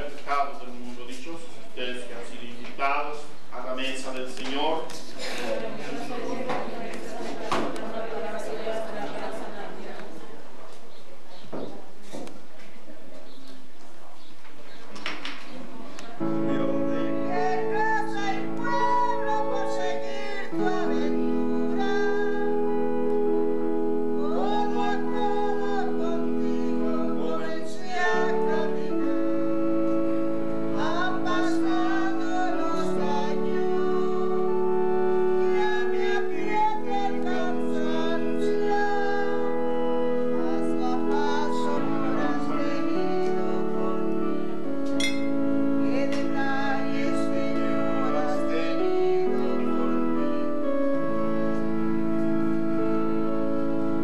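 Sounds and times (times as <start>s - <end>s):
electronic keyboard chords: 16.1s - 54.0s.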